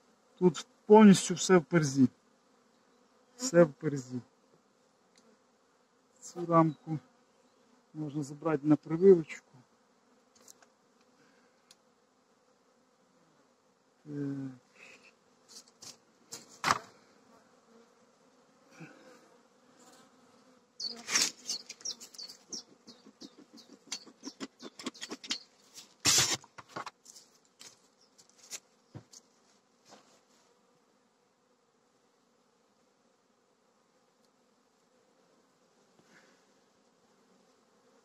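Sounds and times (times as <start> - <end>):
bees buzzing: 0.0 - 38.0
sharp clicks and knocks: 23.1 - 25.4.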